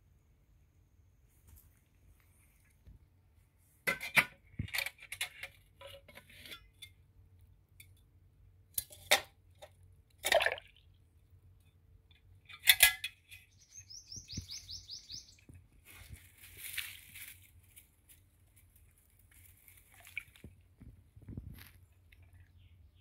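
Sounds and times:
steel bowl clinking and sloshing: 10.2 - 10.8
bird chirping: 13.3 - 15.5.

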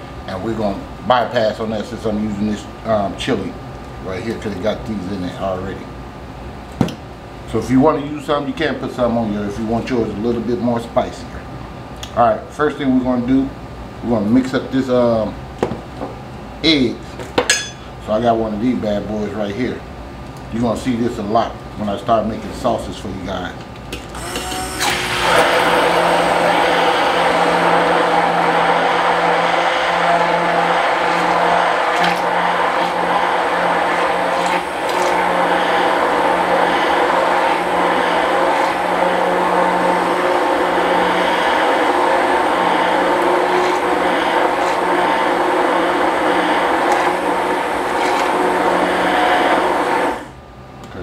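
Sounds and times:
immersion blender whisking eggs: 24.2 - 50.3.

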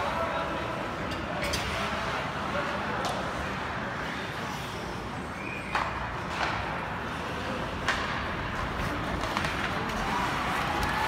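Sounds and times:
arena crowd noise: 0.0 - 11.0
hockey sticks clacking puck: 5.7 - 11.0
skates on ice: 5.7 - 11.0.

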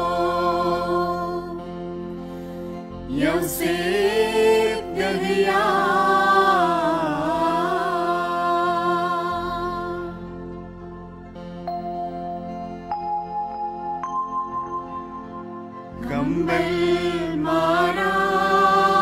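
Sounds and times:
choir singing a slow hymn: 0.0 - 11.6, 15.9 - 19.0.

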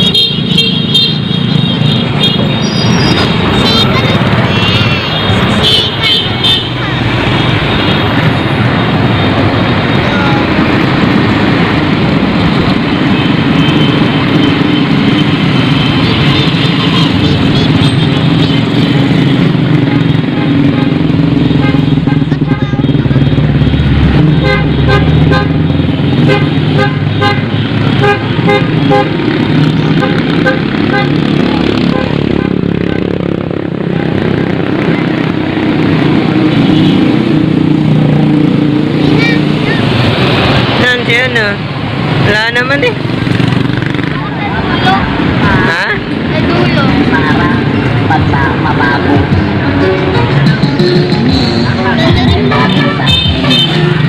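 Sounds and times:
vehicle horns beeping: 0.0 - 10.0, 13.0 - 32.6, 49.0 - 54.0
traffic rumble: 0.0 - 54.0.

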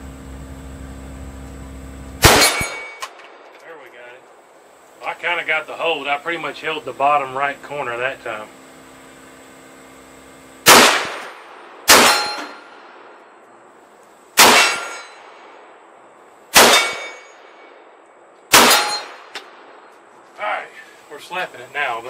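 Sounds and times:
pistol gunshots: 2.2 - 3.5, 10.6 - 13.2, 14.4 - 15.6, 16.5 - 17.8, 18.5 - 19.8
steel target clanging: 2.2 - 3.5, 11.9 - 12.8, 14.4 - 15.5, 16.5 - 17.8, 18.6 - 19.4.

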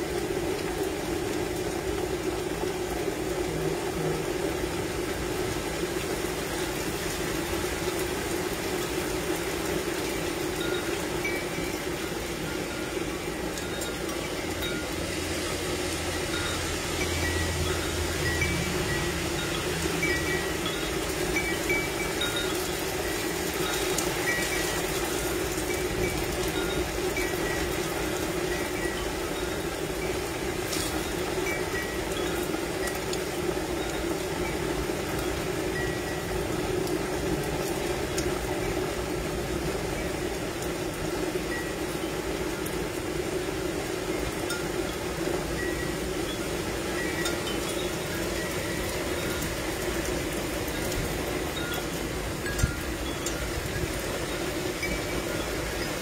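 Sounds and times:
tubular wind chime ringing: 9.4 - 40.4, 44.2 - 56.0.

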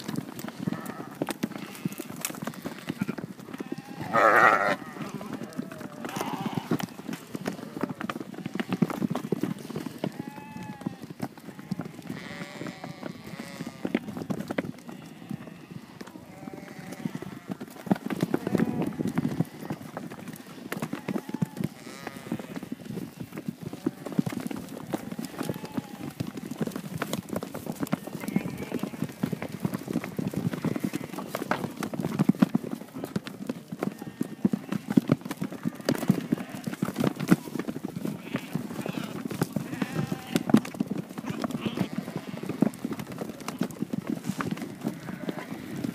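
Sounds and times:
hooves pattering on dirt: 0.0 - 45.9
sheep calls: 0.5 - 9.0, 10.0 - 14.1, 14.9 - 22.8, 24.9 - 26.2, 38.2 - 40.5, 41.2 - 42.8.

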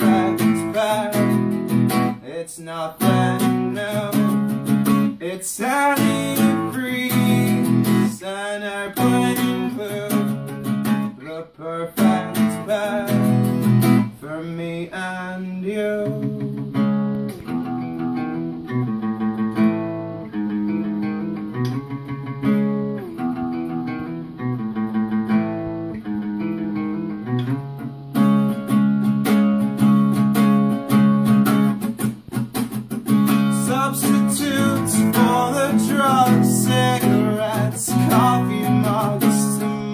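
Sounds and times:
man singing: 0.0 - 16.8, 33.3 - 39.9
acoustic guitar strumming: 0.0 - 39.9.

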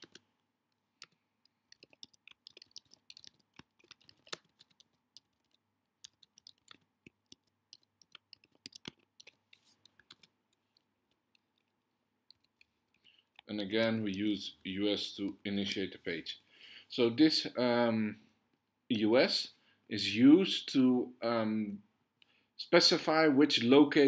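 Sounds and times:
typing on computer keyboard: 0.0 - 0.2, 1.0 - 11.7.

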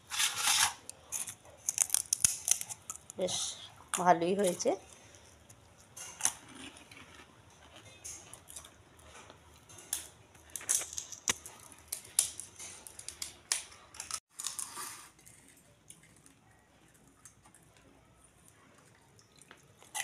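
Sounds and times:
crisp shells cracking: 0.4 - 3.2, 9.9 - 16.3.

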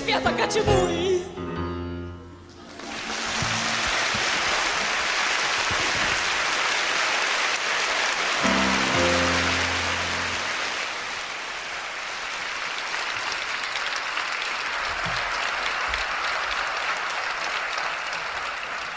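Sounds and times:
audience applauding: 2.6 - 18.9
low music chord: 8.4 - 10.8.

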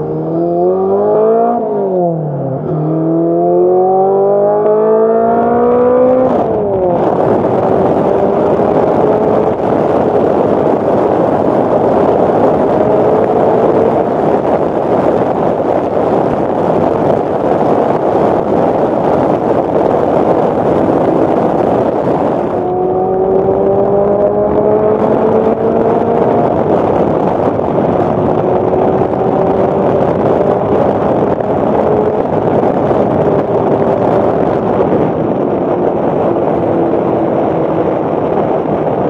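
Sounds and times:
car engine at highway speed: 0.0 - 39.0
wind rush: 0.0 - 39.0.

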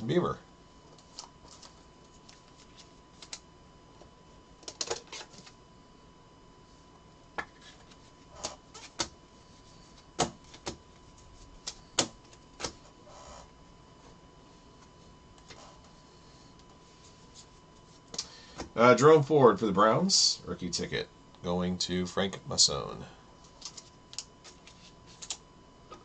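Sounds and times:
card rustle: 0.9 - 3.4, 23.4 - 25.4.

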